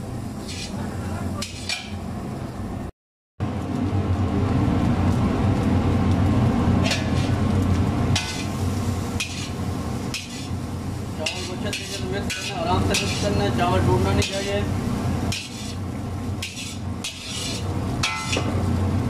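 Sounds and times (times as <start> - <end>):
metal ladle scraping a wok: 0.4 - 0.8, 1.4 - 2.0, 6.8 - 7.4, 8.1 - 8.6, 9.2 - 10.6, 11.2 - 13.4, 15.2 - 15.8, 16.4 - 18.6.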